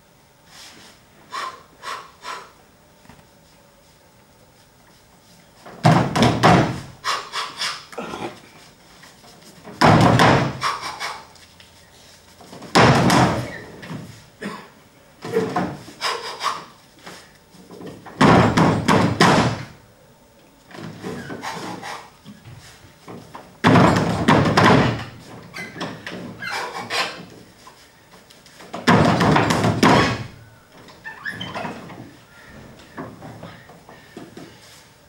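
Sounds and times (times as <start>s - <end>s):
knocks and thumps on wooden stage: 5.7s - 6.9s, 9.7s - 10.6s, 12.5s - 14.1s, 17.8s - 19.8s, 23.1s - 26.4s, 28.7s - 30.4s.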